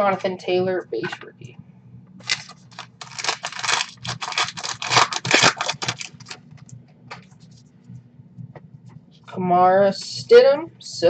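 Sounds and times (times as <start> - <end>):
wrapper tearing and crinkling: 2.2 - 6.4
cards shuffling ticks: 2.2 - 7.6.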